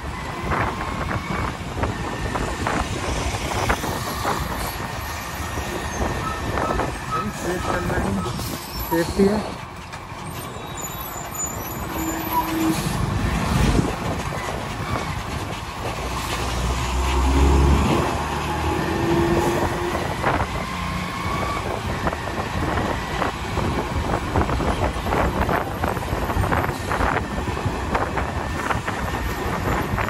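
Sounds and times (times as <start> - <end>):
vehicle engine and road noise: 0.0 - 30.0.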